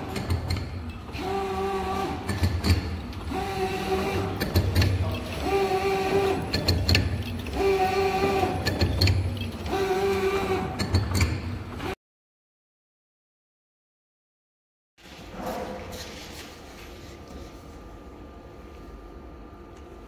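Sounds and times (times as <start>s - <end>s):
machine whine: 0.0s - 12.0s
mechanical clicking and clatter: 2.2s - 11.9s.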